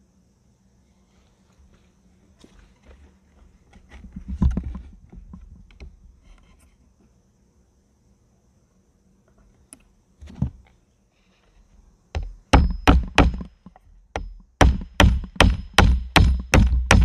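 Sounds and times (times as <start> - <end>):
hammer striking nail into wood: 12.2 - 17.0.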